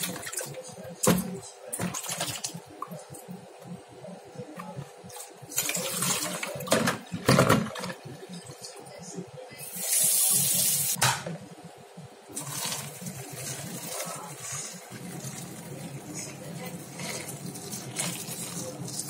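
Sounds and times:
tap water pouring: 4.6 - 8.8, 12.3 - 19.0.

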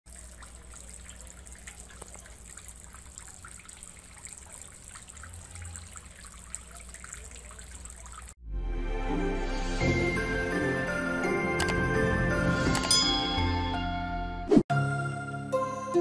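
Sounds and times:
water trickling onto pebbles: 0.0 - 8.4.

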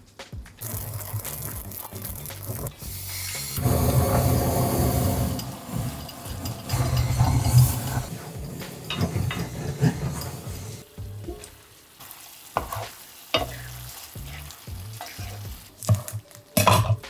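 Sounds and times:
blowtorch flame: 3.4 - 10.8
spatula scraping through sauce: 3.6 - 10.8.

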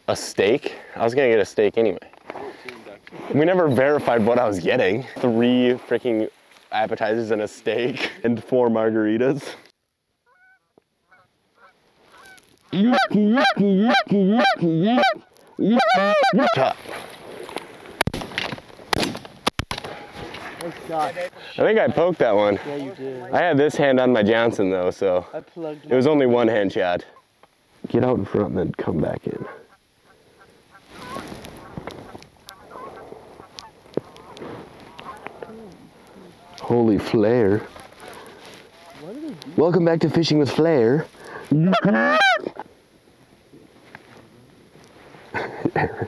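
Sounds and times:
goose honking: 10.2 - 16.8, 29.4 - 36.7, 37.6 - 39.4, 41.6 - 42.6.

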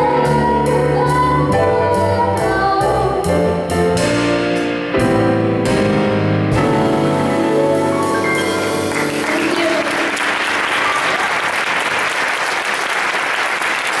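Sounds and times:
piano and double bass chord: 0.0 - 10.4
audience applause: 8.6 - 14.0.

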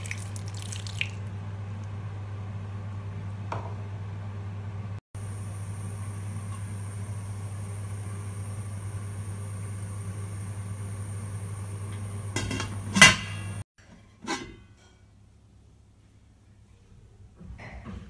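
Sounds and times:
steady low hum: 1.3 - 13.6
metal lid clanking on pot: 12.4 - 13.6.

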